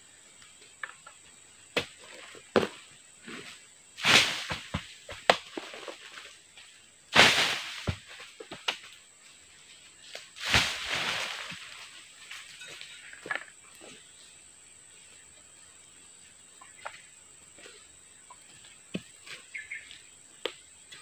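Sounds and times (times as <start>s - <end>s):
fruit crashing through dry leaves: 4.0s - 6.2s, 7.1s - 8.9s, 10.4s - 12.5s.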